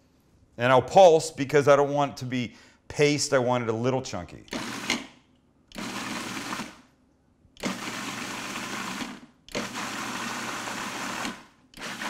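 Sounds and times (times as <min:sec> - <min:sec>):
food processor chopping: 0:04.5 - 0:05.0, 0:05.8 - 0:06.8, 0:07.6 - 0:12.0.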